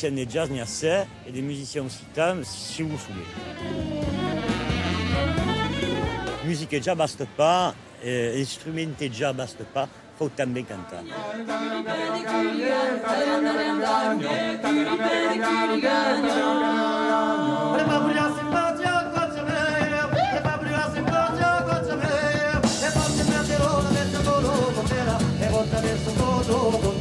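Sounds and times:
small band playing: 0:03.0 - 0:06.8, 0:11.5 - 0:27.0.

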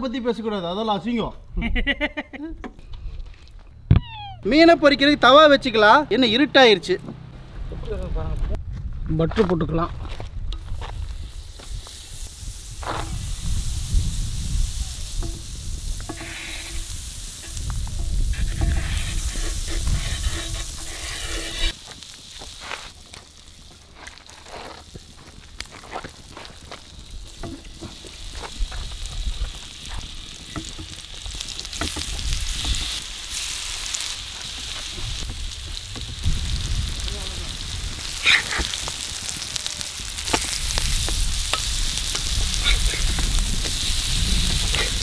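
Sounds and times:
butter sizzling and bubbling: 0:10.5 - 0:45.0
fish frying in butter: 0:11.2 - 0:45.0
spatula pushing on hot pan: 0:15.0 - 0:22.6.

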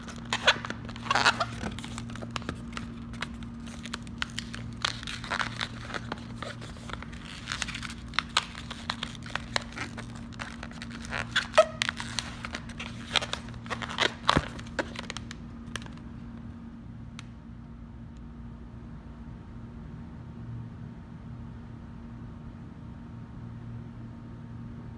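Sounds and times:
balloons squeaking and creaking: 0:00.0 - 0:16.0.

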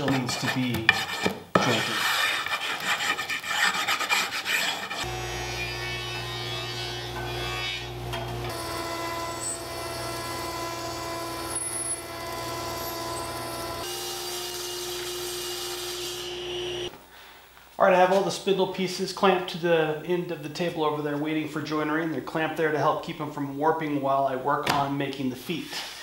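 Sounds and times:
chalk scraping on wood: 0:00.0 - 0:05.1
woodworking machine motors humming: 0:05.0 - 0:16.9.

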